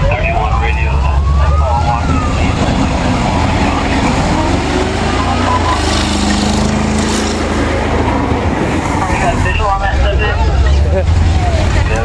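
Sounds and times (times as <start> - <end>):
faint voices: 0.0 - 6.1, 8.8 - 12.0
tracked vehicle engine rumble: 0.0 - 12.0
steel tracks grinding: 2.4 - 9.3.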